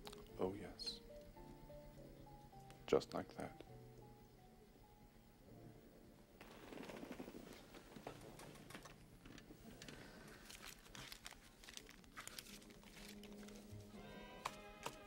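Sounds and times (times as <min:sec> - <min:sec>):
paper banknotes crinkling: 0:10.3 - 0:15.0.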